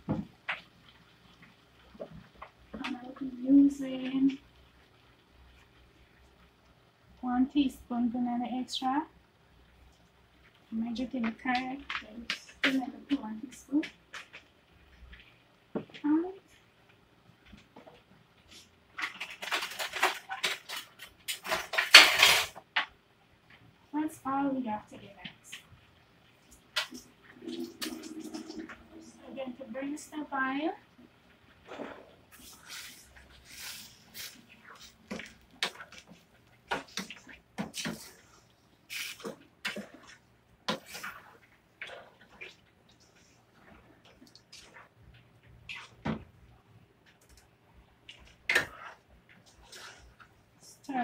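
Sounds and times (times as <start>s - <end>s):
plastic spoon scraping in pan: 26.9s - 29.6s, 31.7s - 43.9s, 48.5s - 50.3s.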